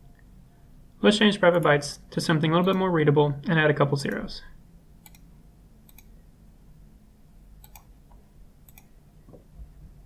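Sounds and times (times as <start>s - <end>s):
faint low room hum: 0.0s - 10.0s
computer mouse clicking: 5.0s - 6.2s, 7.6s - 8.9s.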